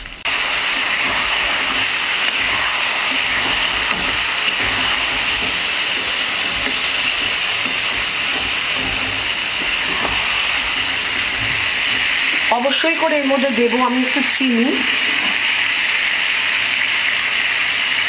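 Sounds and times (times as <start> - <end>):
crab pieces sizzling in hot oil: 0.0 - 18.0
metal spatula stirring: 0.4 - 13.1.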